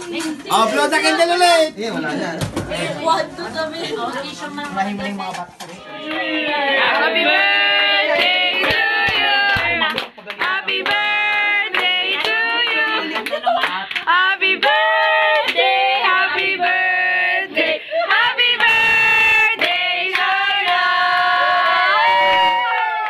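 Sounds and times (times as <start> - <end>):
women and children singing: 5.8 - 22.6
hand clapping: 8.2 - 15.6.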